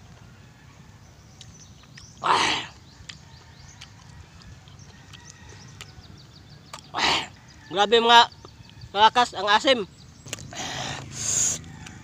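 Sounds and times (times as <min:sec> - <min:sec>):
chewing and lip smacks: 0:01.4 - 0:07.6
man's sharp breath through lips: 0:10.5 - 0:11.7.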